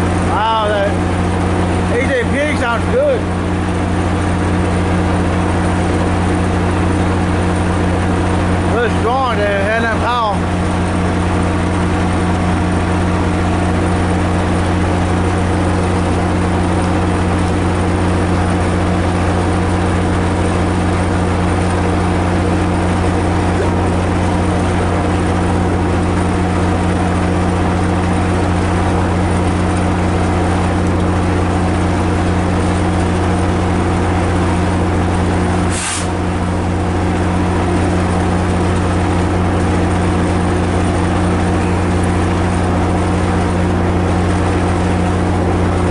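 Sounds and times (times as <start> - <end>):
diesel locomotive engine drone: 0.0 - 45.9
brief hiss: 35.7 - 36.2.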